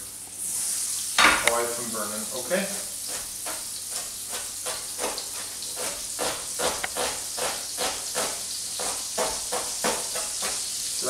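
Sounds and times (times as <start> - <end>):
butter sizzling in frying pan: 0.0 - 11.0
knife chopping on board: 3.1 - 10.7.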